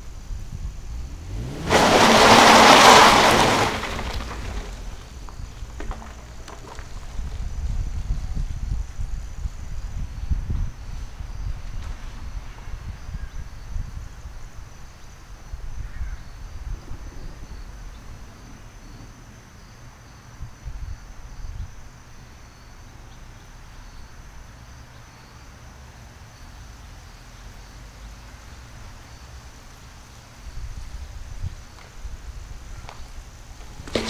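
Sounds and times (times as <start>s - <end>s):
insects chirping: 3.4s - 34.0s
wind on microphone: 7.0s - 14.5s, 15.6s - 19.2s.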